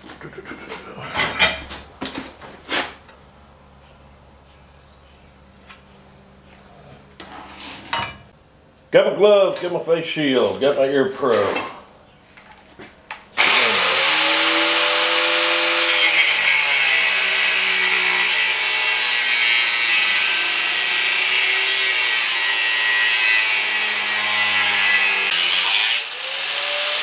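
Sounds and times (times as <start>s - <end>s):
angle grinder cutting steel: 13.4s - 27.0s.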